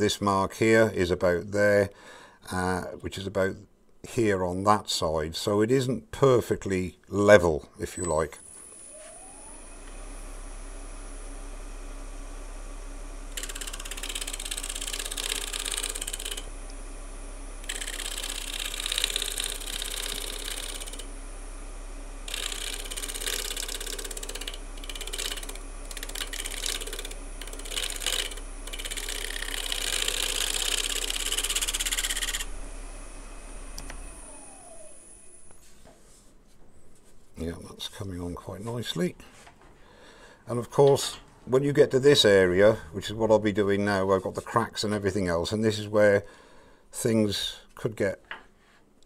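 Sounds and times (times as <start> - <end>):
lathe winding down: 8.4 - 35.6
wood lathe humming: 8.4 - 35.6
turning tool scraping wood: 17.6 - 21.1, 22.3 - 32.5.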